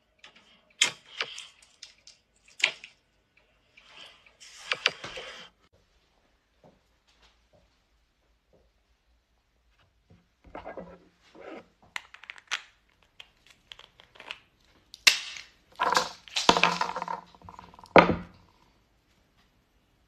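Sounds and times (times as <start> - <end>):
walnut shells cracking: 11.9 - 18.1.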